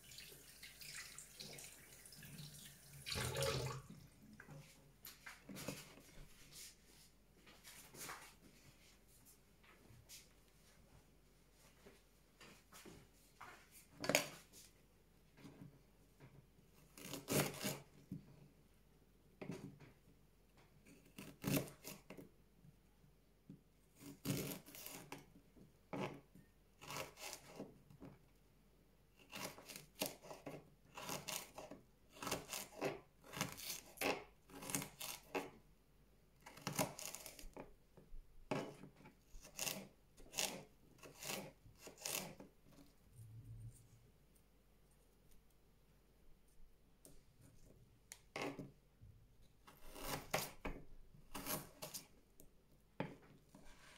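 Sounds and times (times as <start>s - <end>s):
knife cutting on plastic board: 29.2s - 35.6s, 36.4s - 37.6s, 38.5s - 42.9s, 49.6s - 52.2s.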